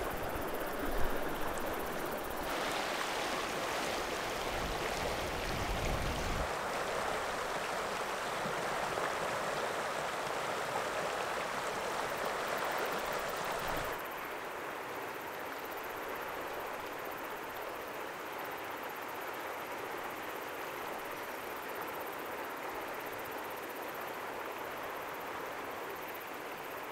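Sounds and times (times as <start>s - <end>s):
river rushing: 0.0s - 15.0s.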